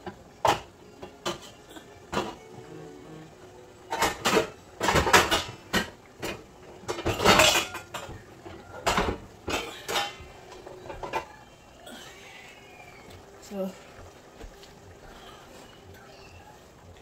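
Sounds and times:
metal cookware clattering: 0:00.0 - 0:02.5, 0:03.8 - 0:11.4.

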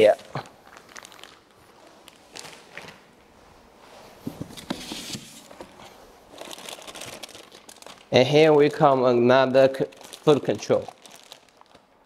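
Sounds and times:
plastic packaging crinkling: 0:00.0 - 0:03.0, 0:05.4 - 0:12.0.

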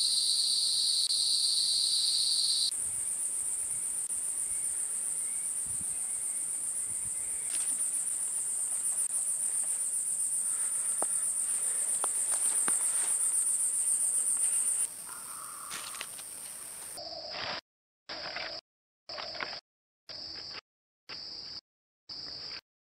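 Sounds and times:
insects shrilling: 0:00.2 - 0:17.0.

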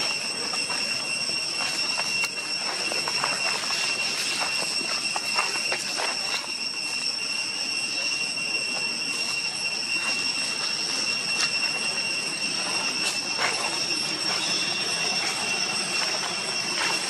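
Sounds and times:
dry leaves crackling: 0:00.0 - 0:06.6, 0:10.0 - 0:17.0
high-pitched insect drone: 0:00.0 - 0:17.0.

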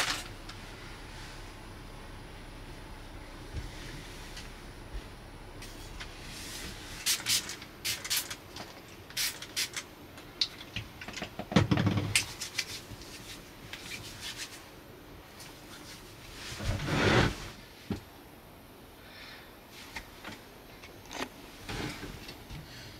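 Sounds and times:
cloth wiping wooden table: 0:05.6 - 0:07.0.

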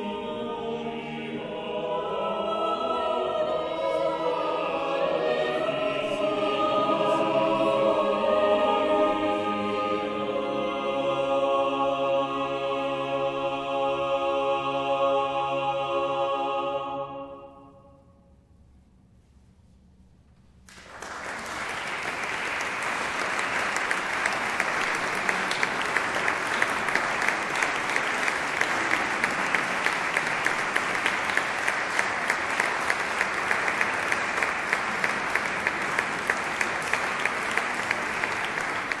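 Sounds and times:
audience applauding: 0:20.7 - 0:39.0
sharp nearby claps: 0:20.7 - 0:39.0.

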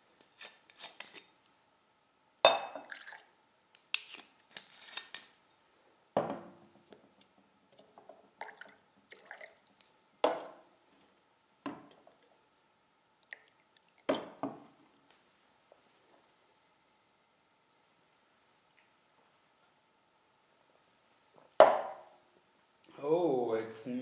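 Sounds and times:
liquid pouring into a glass: 0:02.5 - 0:03.3, 0:08.4 - 0:09.8
knocks on a hard table: 0:21.6 - 0:21.9.

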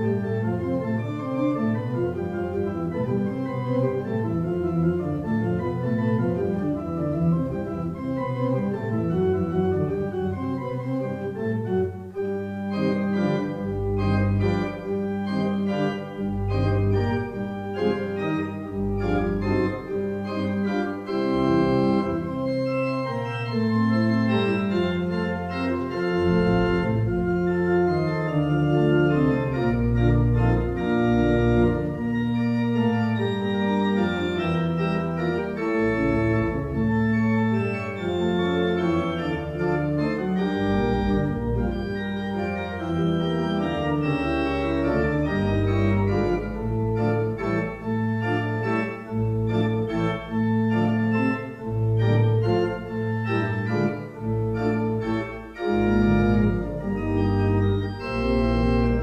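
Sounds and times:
pipe organ playing: 0:00.0 - 0:59.0.

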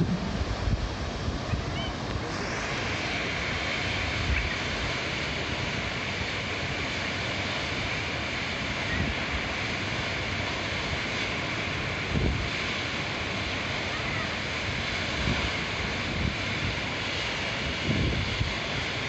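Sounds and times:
wind buffeting microphone: 0:00.0 - 0:02.3, 0:17.8 - 0:18.5
river rushing: 0:00.0 - 0:19.0.

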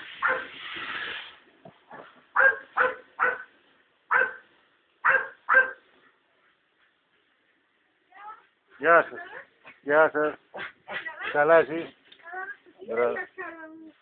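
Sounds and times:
dog barking: 0:00.2 - 0:00.5, 0:01.9 - 0:03.5, 0:04.1 - 0:04.4, 0:05.0 - 0:05.8.

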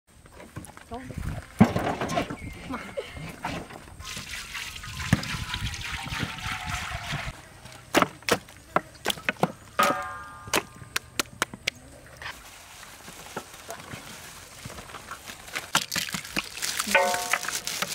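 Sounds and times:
oil pouring into wok: 0:04.1 - 0:07.3
ringing metallic clang: 0:09.8 - 0:10.8.

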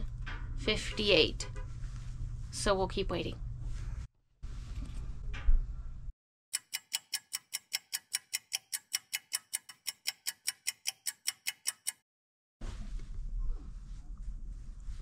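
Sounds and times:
rapid clock ticking: 0:06.6 - 0:12.0.

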